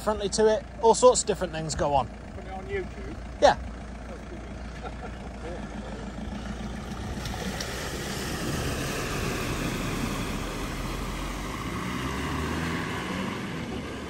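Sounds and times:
low engine hum: 0:00.0 - 0:14.0
water rushing around car wheels: 0:06.0 - 0:14.0.

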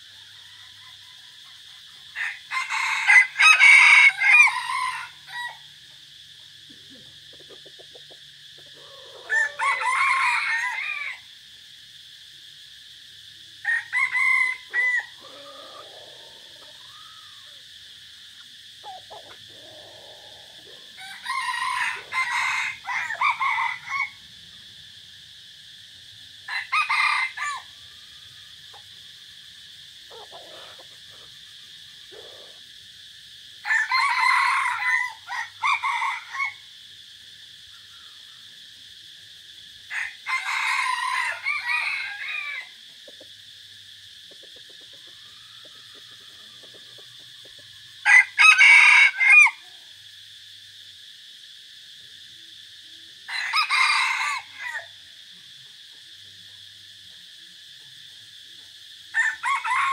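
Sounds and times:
roosters crowing: 0:00.0 - 0:05.8, 0:07.9 - 0:11.4, 0:13.6 - 0:25.1, 0:26.4 - 0:36.9, 0:39.9 - 0:42.9, 0:45.0 - 0:49.7, 0:53.2 - 0:55.0, 0:59.1 - 0:59.9.

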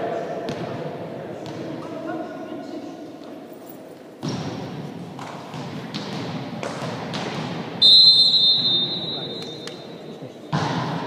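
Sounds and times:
ball bouncing on floor: 0:04.2 - 0:07.6
referee's whistle: 0:07.8 - 0:09.9.

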